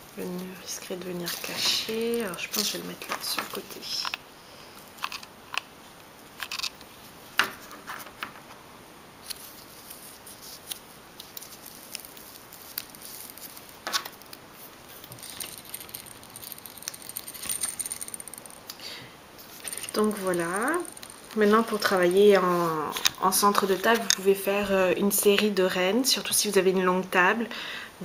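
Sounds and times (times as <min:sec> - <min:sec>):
small clicks and rustles: 0:09.2 - 0:18.8, 0:19.4 - 0:24.3.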